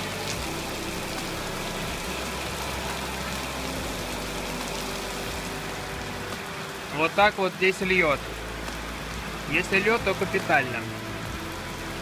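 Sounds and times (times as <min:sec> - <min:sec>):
low steady hum: 0:00.0 - 0:06.6
heavy rain hissing: 0:00.0 - 0:12.0.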